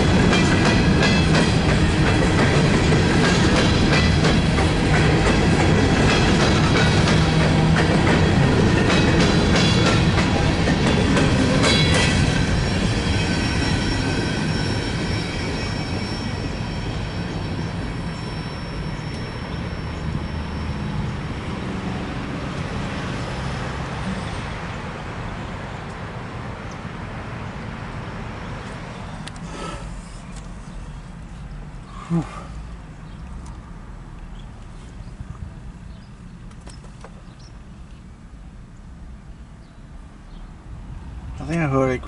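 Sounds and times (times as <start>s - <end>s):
train wheels clacking on rails: 0.0s - 21.0s
freight train rumble: 0.0s - 42.0s
thin high wheel squeal: 12.5s - 21.1s.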